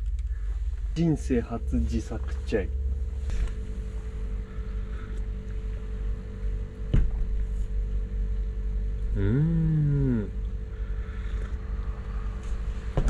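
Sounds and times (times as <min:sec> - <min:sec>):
steady low rumble: 0:00.0 - 0:13.0
man humming: 0:09.1 - 0:10.5.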